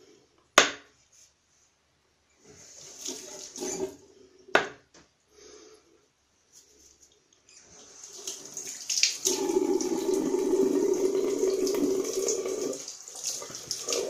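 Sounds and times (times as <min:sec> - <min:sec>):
tap water running: 0:02.4 - 0:04.0, 0:07.6 - 0:14.0.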